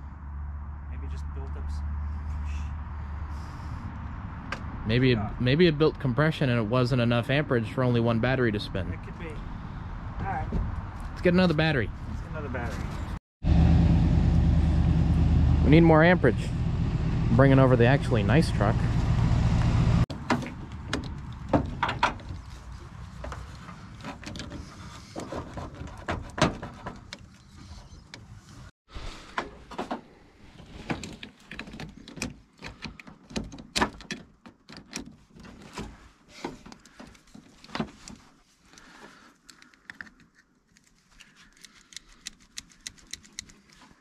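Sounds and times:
truck engine running: 0:13.4 - 0:20.0.

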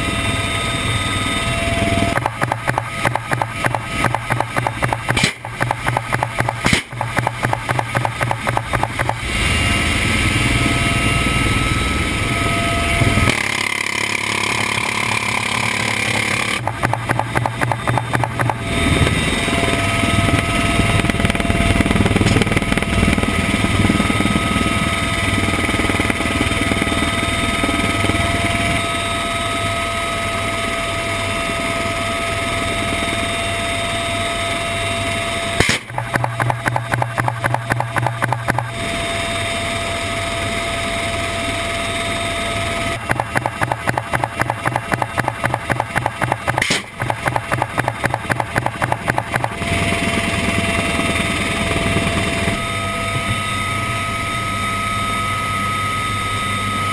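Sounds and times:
helicopter rotor and turbine noise: 0:00.0 - 0:56.9
minigun firing bursts: 0:02.2 - 0:09.2.

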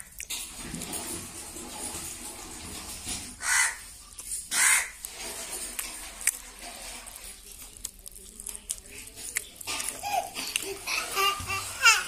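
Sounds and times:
crow cawing: 0:03.4 - 0:03.8, 0:04.5 - 0:05.0.

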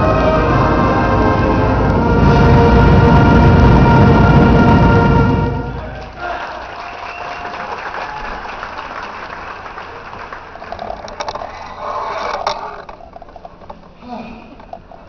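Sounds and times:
audience applauding: 0:05.8 - 0:12.4.

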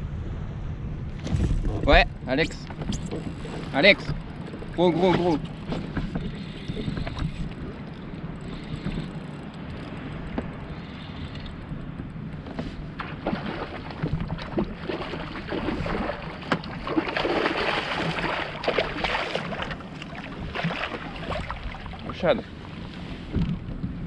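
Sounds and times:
wind rumbling on microphone: 0:00.0 - 0:24.0
water slapping a kayak hull: 0:01.2 - 0:24.0
water splashing: 0:12.9 - 0:23.4.

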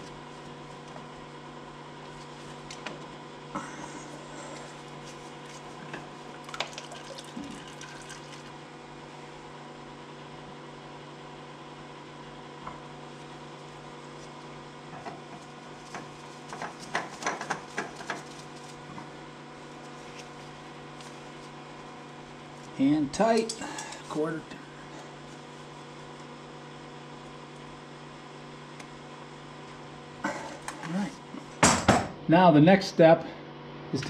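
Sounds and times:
steady hum: 0:00.0 - 0:34.0
oil dribbling into pan: 0:06.5 - 0:08.5.

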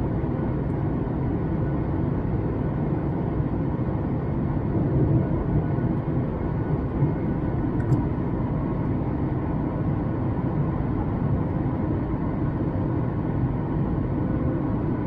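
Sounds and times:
airplane cabin engine drone: 0:00.0 - 0:15.0
small click: 0:07.8 - 0:08.0.

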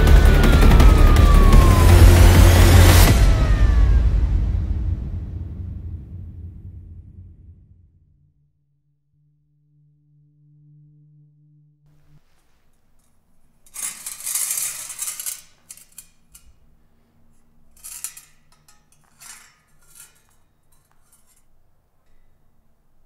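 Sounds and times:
faint low hum: 0:02.6 - 0:23.0
metal bowl scraping on tiled floor: 0:12.0 - 0:22.4.

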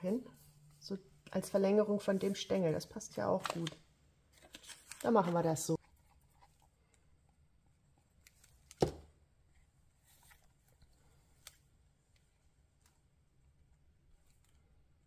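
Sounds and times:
soft paper rustle: 0:03.3 - 0:07.1, 0:09.5 - 0:13.1.

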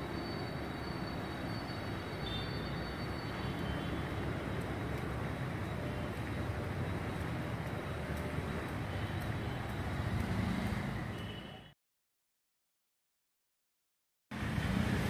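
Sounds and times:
outdoor rumbling background noise: 0:00.0 - 0:11.3, 0:14.4 - 0:15.0.

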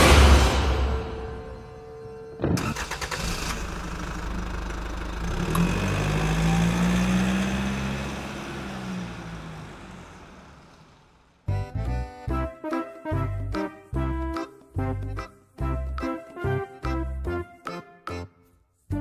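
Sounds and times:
truck engine running: 0:02.6 - 0:11.9.

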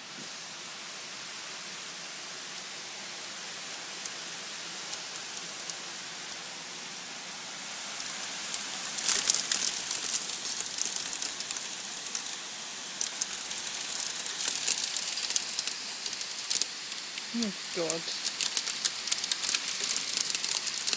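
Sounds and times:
hail and rain falling: 0:02.5 - 0:06.5, 0:07.2 - 0:20.9
hail clicking: 0:04.8 - 0:06.4, 0:08.0 - 0:20.9.

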